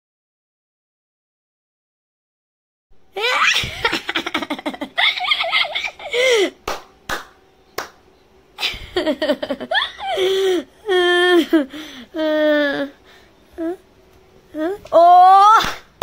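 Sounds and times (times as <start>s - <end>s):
young woman laughing hard: 3.2s - 6.6s, 8.6s - 12.9s.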